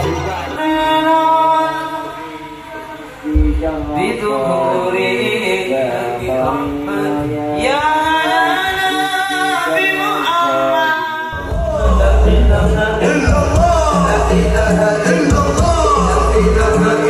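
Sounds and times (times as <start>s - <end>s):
person singing devotional song: 0.0s - 17.0s
deep bass: 3.3s - 4.2s, 11.4s - 17.0s.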